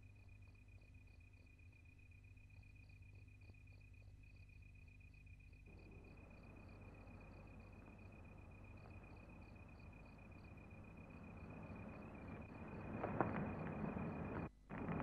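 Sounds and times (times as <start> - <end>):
crickets chirping: 0.0 - 15.0
low mains hum: 0.0 - 15.0
faint hiss: 5.7 - 15.0.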